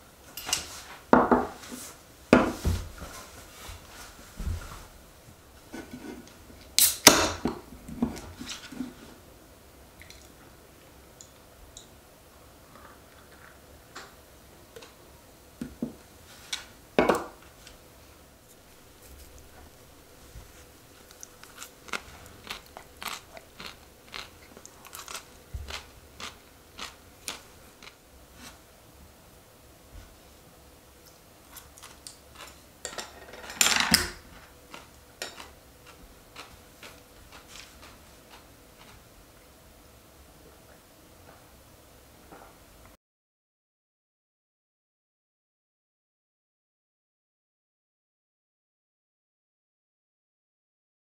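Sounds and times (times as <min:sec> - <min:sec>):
crunchy chewing: 0:18.8 - 0:28.6, 0:31.4 - 0:32.6, 0:34.4 - 0:39.1.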